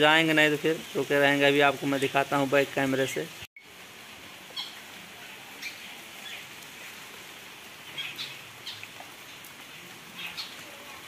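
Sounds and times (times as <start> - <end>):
falling rain hiss: 0.0 - 11.0
small birds chirping: 4.5 - 11.0.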